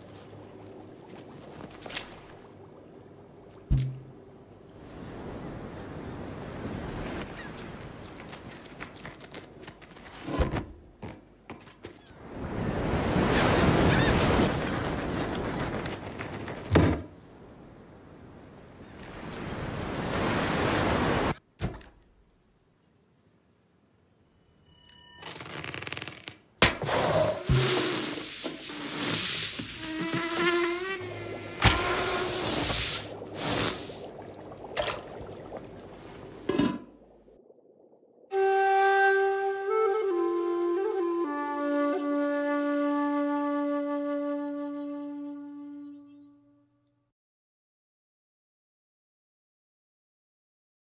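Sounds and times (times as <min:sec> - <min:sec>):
thud: 0:03.7 - 0:04.0
ocean waves crashing: 0:12.2 - 0:15.8, 0:19.2 - 0:21.4
hissing: 0:26.8 - 0:37.1.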